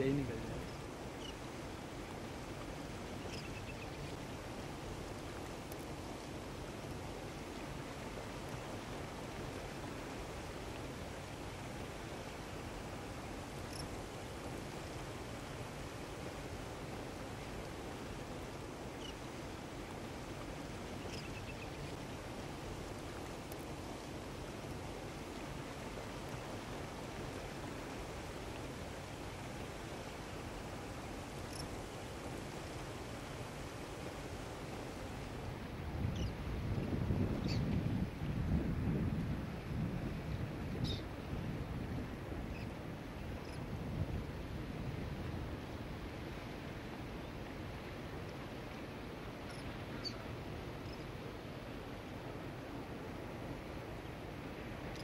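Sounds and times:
outdoor rumble and hiss: 0:00.0 - 0:55.0
faint bird calls: 0:00.6 - 0:01.4, 0:03.2 - 0:04.0, 0:18.9 - 0:19.2, 0:21.0 - 0:21.8, 0:49.5 - 0:50.2.

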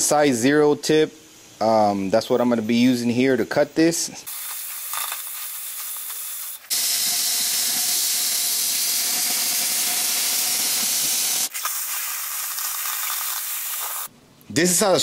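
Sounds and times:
cutting torch hissing: 0:04.2 - 0:14.1.

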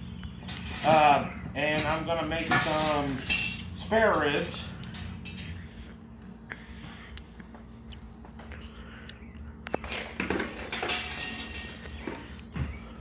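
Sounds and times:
metal pot clinking on grill grate: 0:00.4 - 0:05.7, 0:10.0 - 0:12.2.

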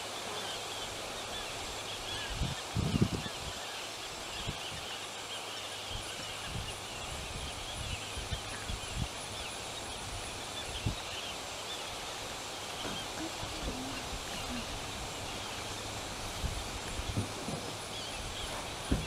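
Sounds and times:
birds chirping: 0:00.1 - 0:19.0.

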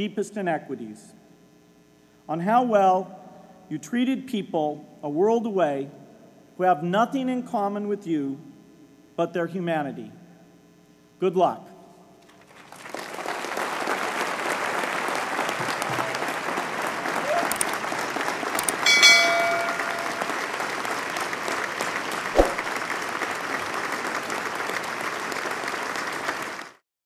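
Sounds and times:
audience applauding: 0:12.4 - 0:26.8
bell-like chime: 0:18.8 - 0:20.5.

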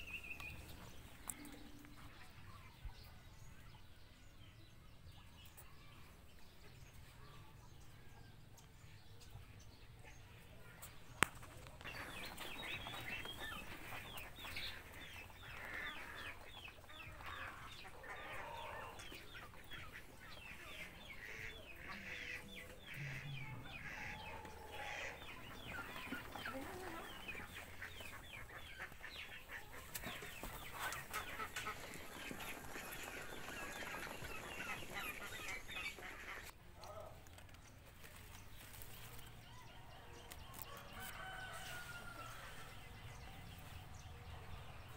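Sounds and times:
ducks quacking: 0:11.8 - 0:36.6.

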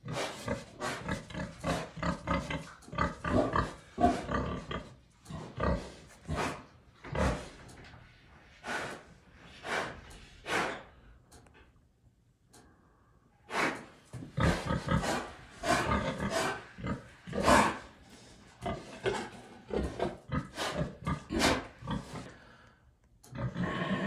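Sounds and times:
pigs grunting: 0:00.0 - 0:07.9, 0:13.5 - 0:22.6, 0:23.2 - 0:24.0.

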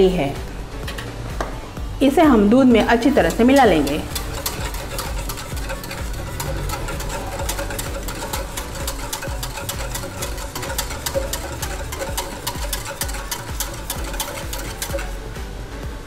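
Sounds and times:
whisk clicking against metal pot: 0:02.7 - 0:15.5.

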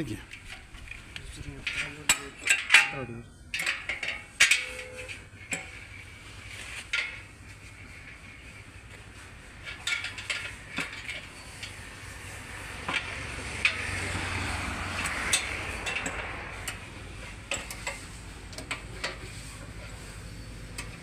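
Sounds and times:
metallic clicks and clinks: 0:12.8 - 0:16.9.

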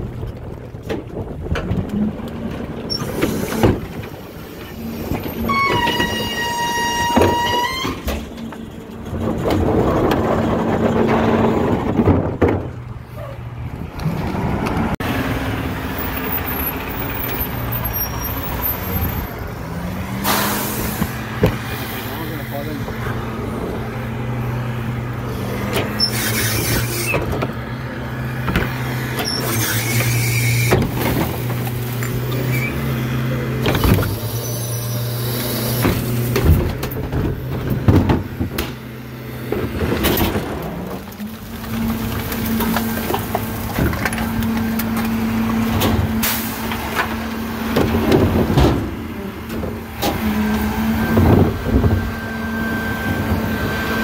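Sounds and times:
garbage truck engine and hydraulics: 0:00.0 - 0:54.0
hydraulic squeals: 0:02.9 - 0:08.8, 0:16.0 - 0:19.5, 0:25.7 - 0:27.3, 0:29.2 - 0:31.0, 0:32.0 - 0:32.9, 0:33.8 - 0:36.3.

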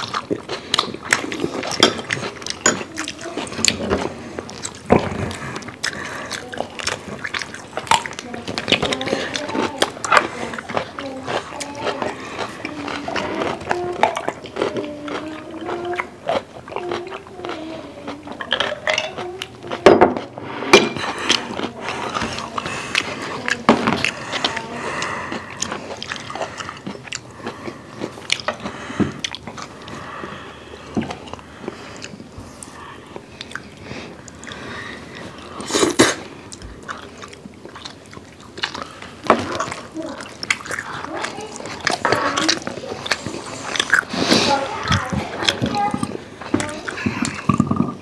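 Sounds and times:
chewing and biting food: 0:00.0 - 0:47.8
chopsticks clicking on plates: 0:18.4 - 0:24.2.

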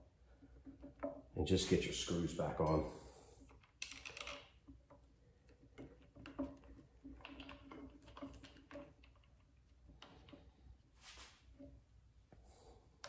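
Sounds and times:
small clicks and taps of screws: 0:03.4 - 0:10.5.

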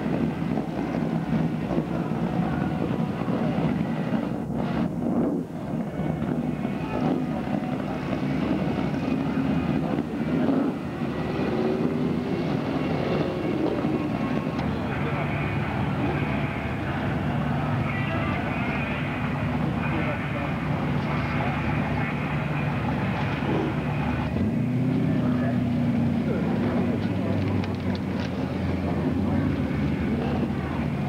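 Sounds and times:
cars cruising past rumbling: 0:00.0 - 0:31.0.

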